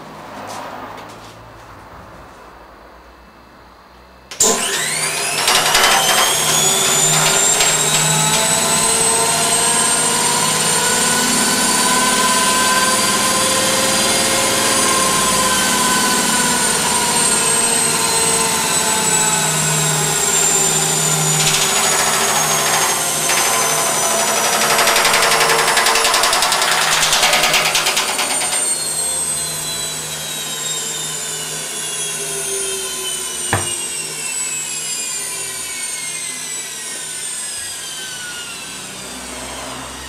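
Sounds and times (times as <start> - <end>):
washing machine spinning up: 4.3 - 13.2, 16.1 - 29.0.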